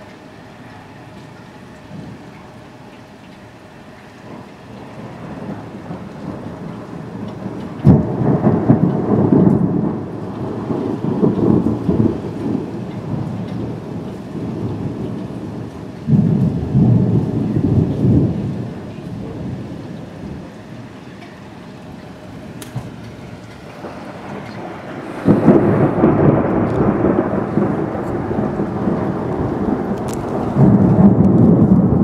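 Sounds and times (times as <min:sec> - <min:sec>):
thunder rolling: 0:04.2 - 0:32.0
sharp thunder clap: 0:05.2 - 0:18.7, 0:23.7 - 0:32.0.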